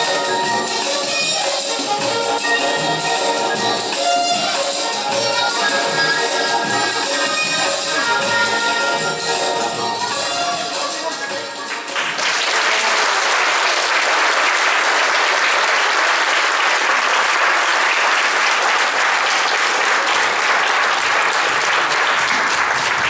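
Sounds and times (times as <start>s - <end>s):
music: 0.0s - 15.0s, 18.0s - 23.0s
audience applauding: 11.7s - 23.0s.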